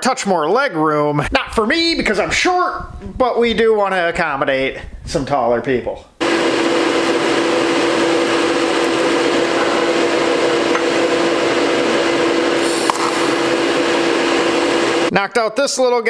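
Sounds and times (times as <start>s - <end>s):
welding arc hiss: 12.6s - 15.1s.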